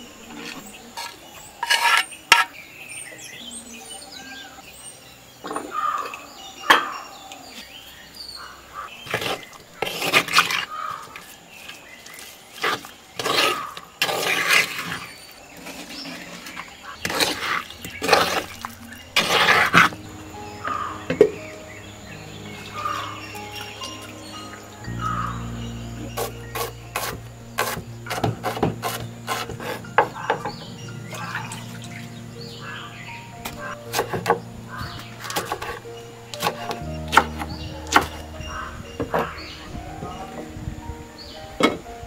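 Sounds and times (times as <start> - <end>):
wooden spoon scraping clay pot: 0.3 - 2.6, 9.0 - 10.7, 12.5 - 20.0, 26.1 - 30.6, 33.9 - 35.8
knife chopping onions on wooden board: 26.2 - 29.8, 33.9 - 34.4.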